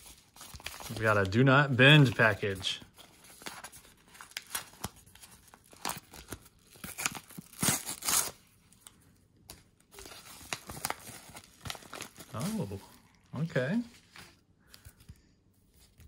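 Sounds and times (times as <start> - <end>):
paper envelope tearing: 0.0 - 8.4
paper rustling: 0.0 - 16.0.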